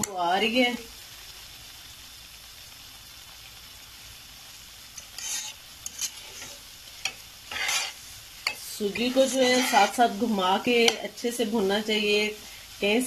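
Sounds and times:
semolina sizzling in oil: 0.0 - 13.0
metal spoon scraping a pan: 5.0 - 11.1.

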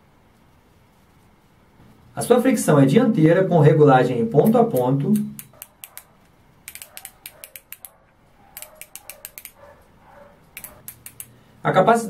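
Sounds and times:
fishing reel drag knob clicking: 6.7 - 8.0, 8.6 - 9.6.

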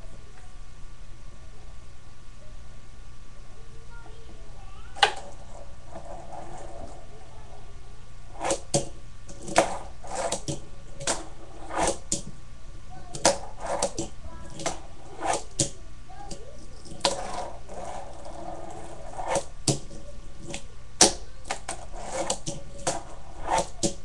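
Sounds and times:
fingerboard scraping grinds: 5.0 - 7.6, 8.3 - 12.2, 13.1 - 15.6, 16.7 - 20.6, 21.5 - 24.0.

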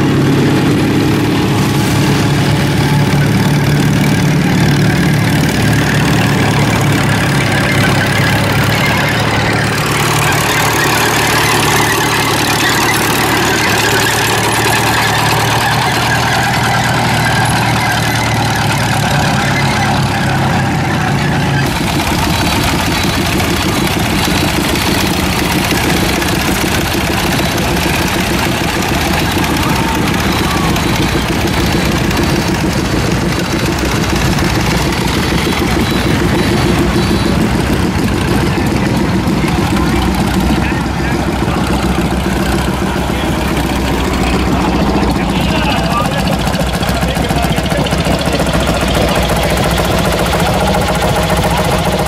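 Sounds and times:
old engine humming: 0.0 - 52.0
machine with fast even pulse: 21.6 - 40.4.

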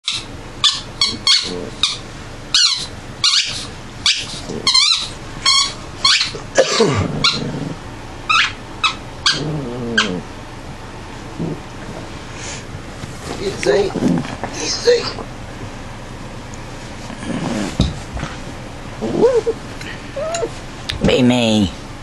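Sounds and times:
dogs yipping and whining: 0.0 - 10.3, 19.0 - 20.6.

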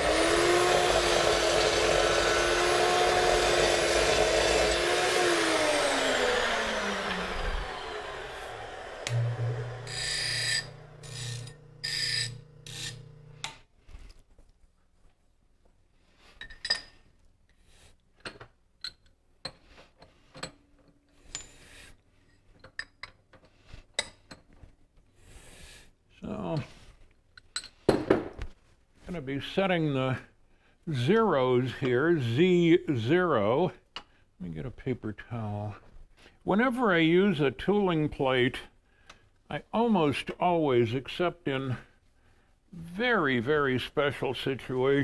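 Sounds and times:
metal scraping on grinder wheel: 0.0 - 13.4
bench grinder wheel running: 0.0 - 13.5
chop saw cutting aluminium: 0.0 - 13.5.

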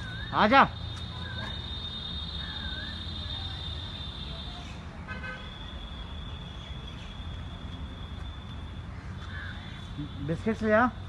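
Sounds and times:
low traffic rumble: 0.0 - 11.0
steady high-pitched whine: 0.0 - 11.0
vehicle horn toot: 3.2 - 5.7.

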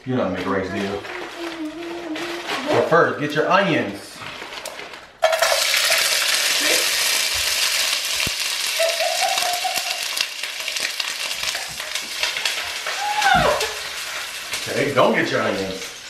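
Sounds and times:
vegetables sizzling in hot oil: 5.2 - 16.0.

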